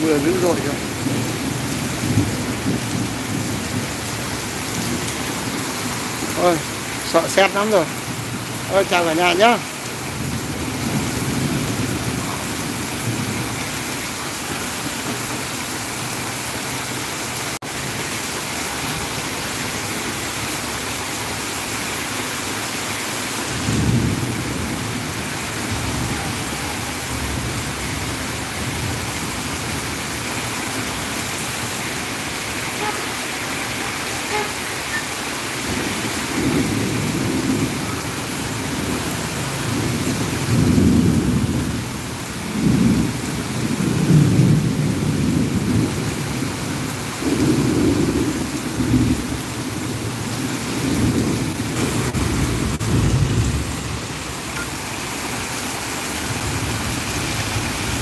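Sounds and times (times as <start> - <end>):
thunder rumbles: 0.0 - 15.5, 23.5 - 31.8, 35.6 - 54.8
heavy rain pouring: 0.0 - 58.0.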